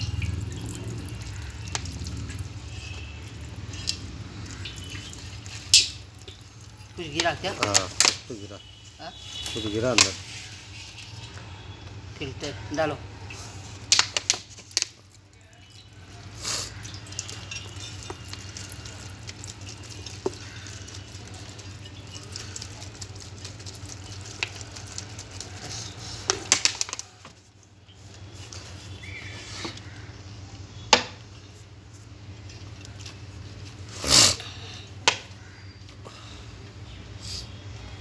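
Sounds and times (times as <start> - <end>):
fluid sloshing and splashing: 0.0 - 11.8, 13.2 - 27.2.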